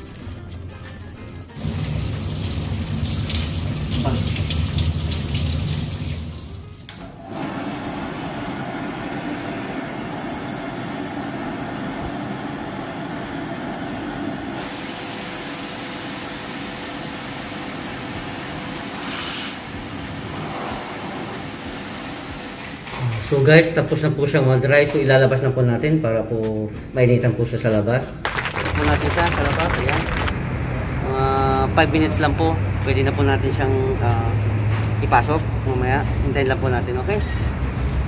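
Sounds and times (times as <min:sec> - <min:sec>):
shower water running: 0:01.5 - 0:06.9, 0:19.8 - 0:22.6.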